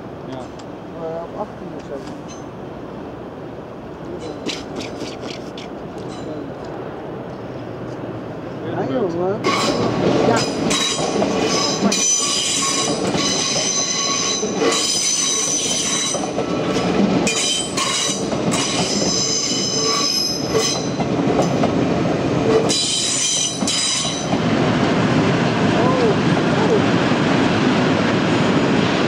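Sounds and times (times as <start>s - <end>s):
train rolling rumble: 0.0s - 29.0s
train wheels squealing: 10.7s - 16.4s, 17.3s - 21.0s, 22.6s - 24.3s.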